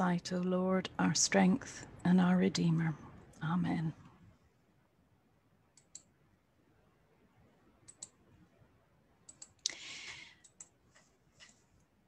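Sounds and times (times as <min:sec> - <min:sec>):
faint scattered clicks: 0:05.8 - 0:06.1, 0:07.8 - 0:08.2, 0:09.3 - 0:11.9.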